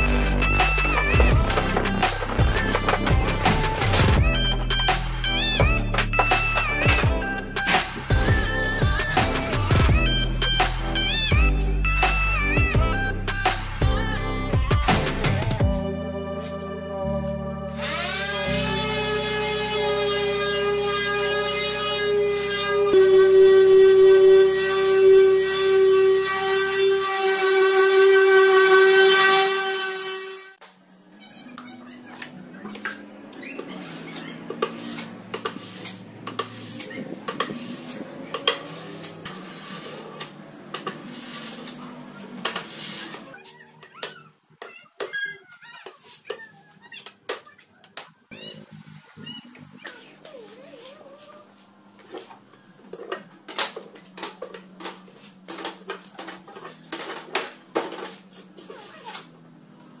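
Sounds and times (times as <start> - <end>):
glue spreader scraping laminate: 17.8 - 30.2, 33.6 - 43.6.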